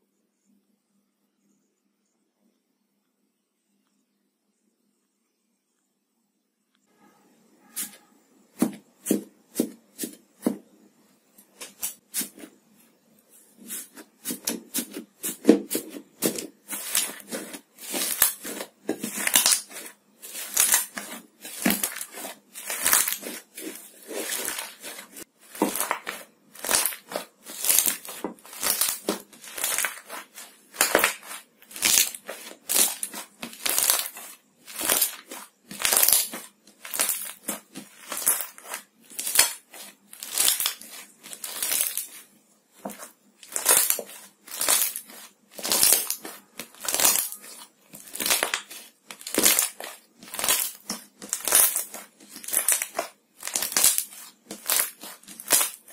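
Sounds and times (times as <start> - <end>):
crunchy slime being squeezed: 13.7 - 55.9.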